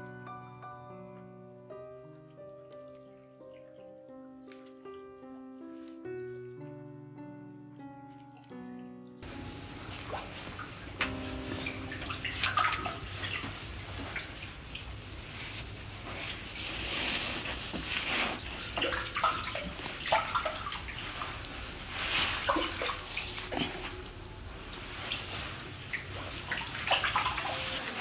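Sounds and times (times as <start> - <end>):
water splashing and sloshing: 1.6 - 6.3, 9.2 - 28.0
knocks and drips: 9.5 - 14.9.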